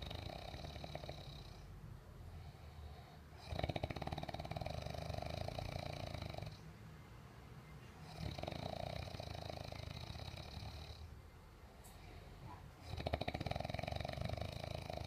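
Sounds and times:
man snoring: 0.0 - 1.8, 3.3 - 6.6, 8.0 - 11.1, 12.8 - 15.0.

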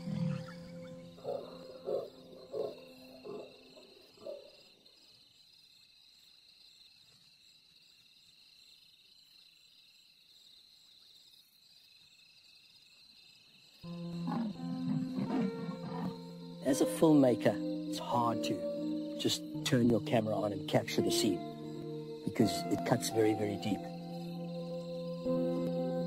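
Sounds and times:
soft music with held notes: 0.0 - 3.4, 13.8 - 26.0
leopard calling: 0.0 - 4.5, 14.1 - 19.6.

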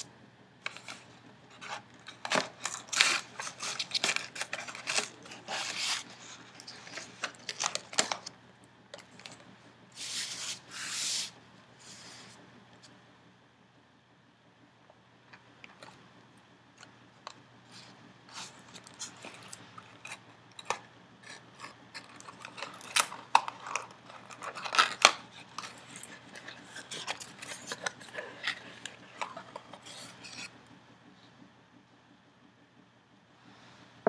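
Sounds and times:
cardboard rubbing and scraping: 0.7 - 8.2, 10.0 - 12.4.

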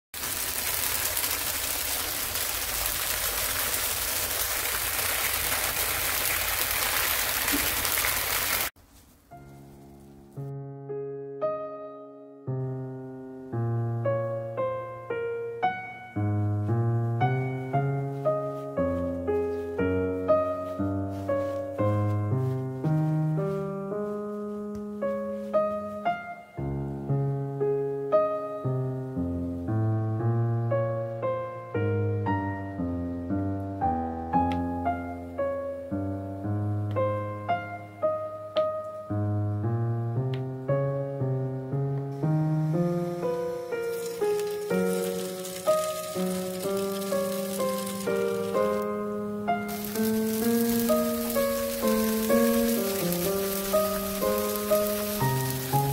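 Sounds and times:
tofu sizzling in hot oil: 0.2 - 8.7, 43.7 - 48.8, 49.7 - 55.9
piano music: 8.7 - 55.9.

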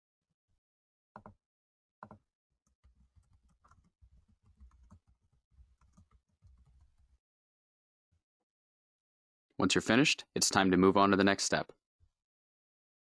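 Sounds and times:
typing on computer keyboard: 1.2 - 1.4, 2.0 - 7.2.

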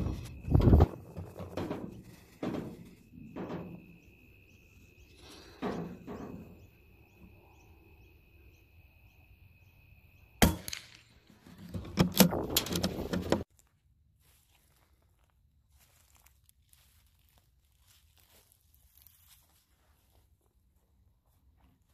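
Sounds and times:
rifle shot: 10.4 - 11.1.

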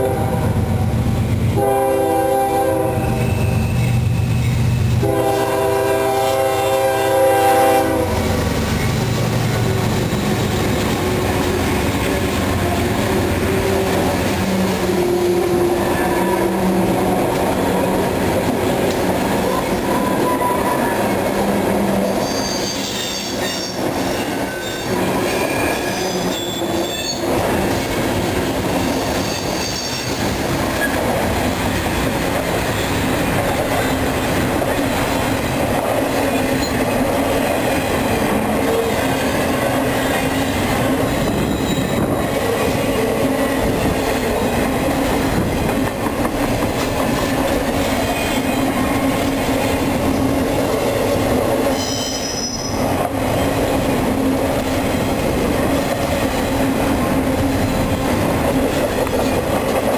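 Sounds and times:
diesel locomotive horn: 0.0 - 4.0, 5.0 - 8.4, 9.6 - 18.2, 19.4 - 27.3, 51.7 - 52.8
train wheels rumbling on rail: 0.0 - 59.9
high-pitched wheel squeal: 22.2 - 27.3, 29.1 - 30.2, 41.4 - 42.0, 51.7 - 52.8.

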